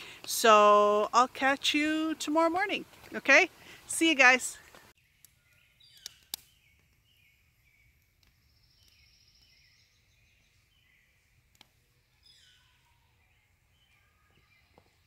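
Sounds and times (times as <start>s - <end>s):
bird chirping: 4.5s - 15.0s.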